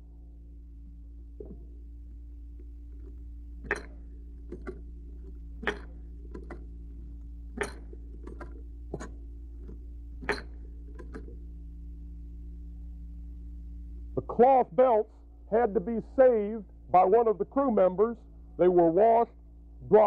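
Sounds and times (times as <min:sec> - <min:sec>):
light mechanism clicks: 0:02.5 - 0:11.4
belt loader metallic clack: 0:03.6 - 0:06.6, 0:07.5 - 0:11.4.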